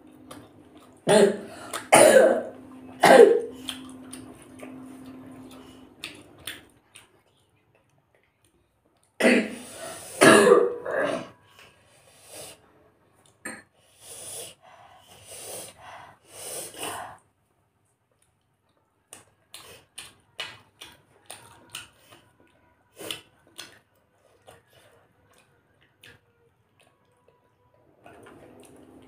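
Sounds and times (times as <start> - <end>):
wet chewing and smacking: 0.0 - 1.0, 2.7 - 9.2, 17.9 - 27.4, 28.0 - 29.0.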